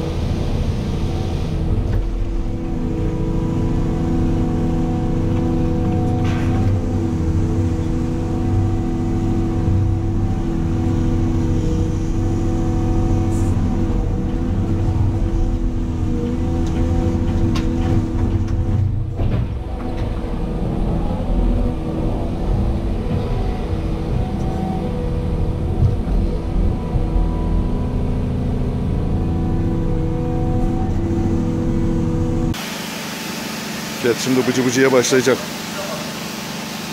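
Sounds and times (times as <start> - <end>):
excavator diesel engine running: 0.0 - 36.9
steady tones: 5.4 - 32.6.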